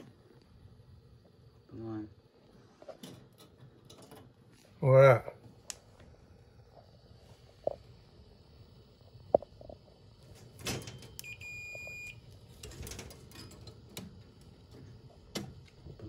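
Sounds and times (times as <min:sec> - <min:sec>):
multimeter high beep: 0:11.0 - 0:12.3.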